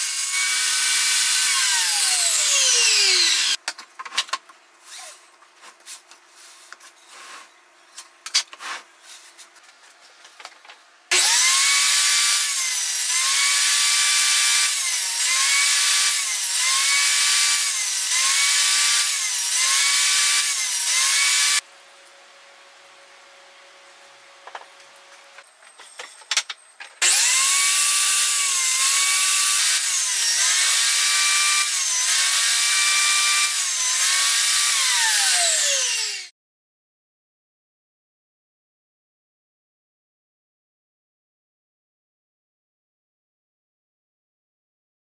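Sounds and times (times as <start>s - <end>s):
saw cutting wood: 0.0s - 3.6s, 11.1s - 21.6s, 27.0s - 36.3s
table saw running: 0.0s - 3.6s, 11.1s - 21.6s, 27.0s - 36.3s.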